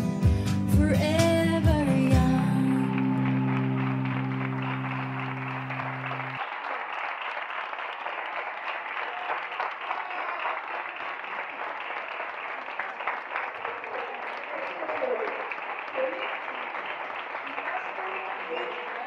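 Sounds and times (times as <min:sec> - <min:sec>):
crowd applauding: 0:01.3 - 0:19.0
sustained music notes: 0:02.5 - 0:06.4.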